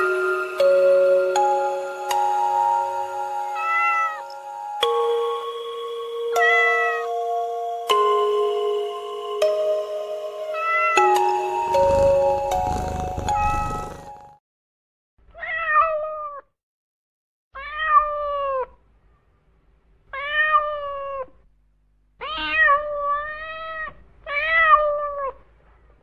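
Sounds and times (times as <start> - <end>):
cat meowing: 3.6 - 4.3, 6.3 - 7.1, 10.5 - 11.1, 13.2 - 14.0, 15.4 - 16.5, 17.6 - 18.8, 20.1 - 21.4, 22.2 - 25.4.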